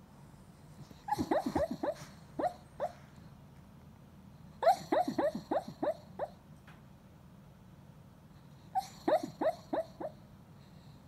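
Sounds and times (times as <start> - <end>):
dog yipping in its sleep: 0.9 - 3.0, 4.6 - 6.4, 8.7 - 10.2.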